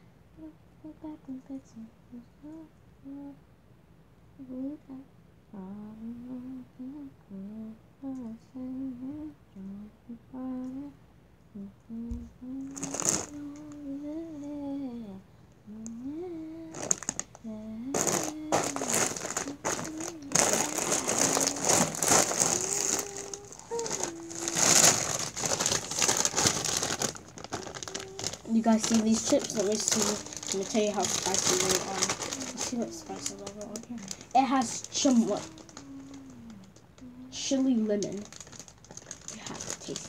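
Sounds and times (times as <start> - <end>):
girl humming a melody: 0.0 - 3.5, 4.3 - 38.4
plastic bag crinkling: 12.6 - 13.7, 16.7 - 40.0.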